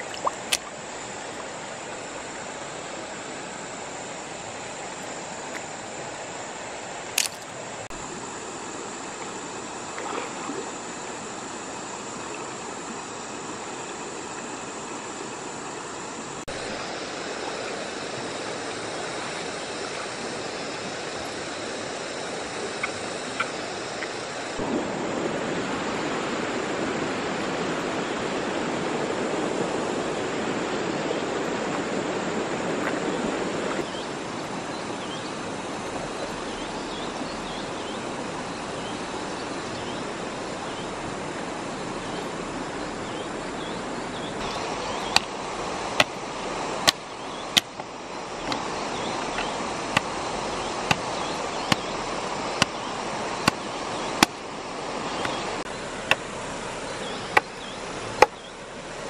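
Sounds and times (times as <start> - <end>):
river running over rocks: 0.0 - 59.0
machete chopping wooden stick: 49.9 - 50.1, 50.8 - 51.9.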